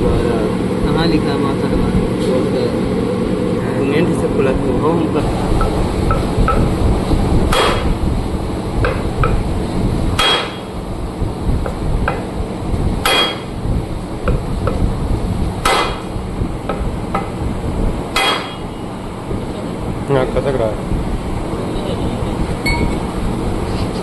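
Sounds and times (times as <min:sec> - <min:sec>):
hammer striking metal: 0:07.5 - 0:07.9, 0:10.2 - 0:10.7, 0:13.0 - 0:13.5, 0:15.6 - 0:16.1, 0:18.1 - 0:18.7.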